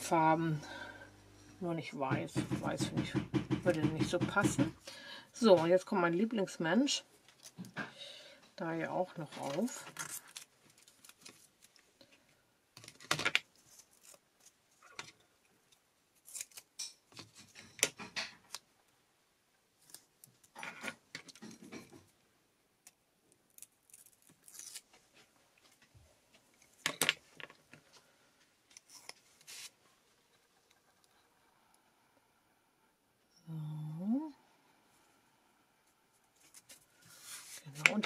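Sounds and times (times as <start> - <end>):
paper and card rustling: 9.2 - 11.9, 12.8 - 14.6, 28.7 - 29.8, 36.3 - 38.0.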